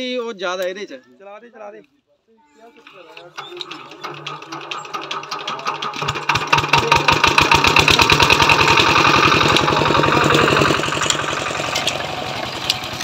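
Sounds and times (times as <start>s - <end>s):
small engine starting and running: 2.6s - 13.0s.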